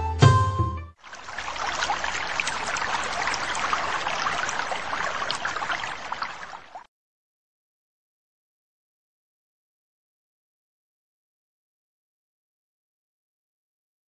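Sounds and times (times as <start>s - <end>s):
water trickling and splashing: 1.0s - 6.9s.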